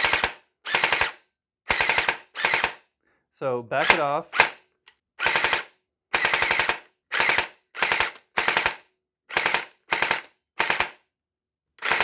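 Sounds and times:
gel blaster firing bursts: 0.0s - 2.8s, 5.2s - 11.0s.

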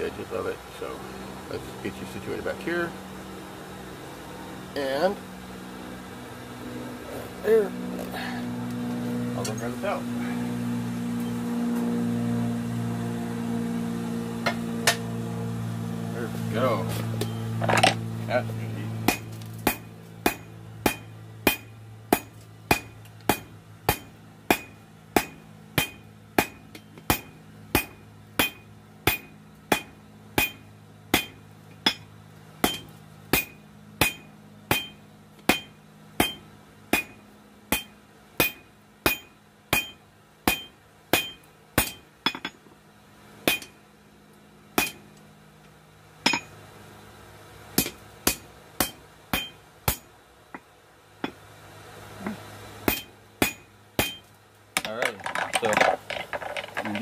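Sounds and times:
hammer ringing on anvil: 19.1s - 42.6s, 43.5s - 43.8s, 44.8s - 45.1s, 46.2s - 46.6s, 47.8s - 50.1s, 52.9s - 54.3s.

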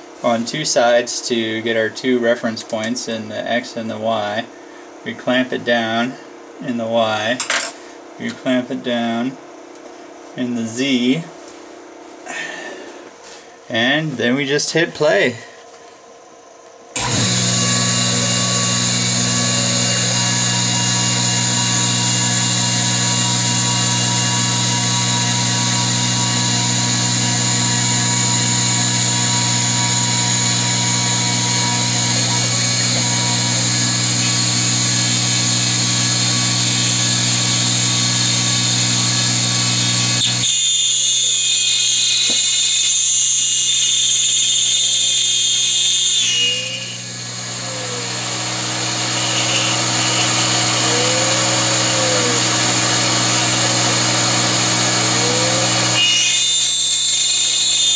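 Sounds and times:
milling machine cutting wood: 17.0s - 57.9s.

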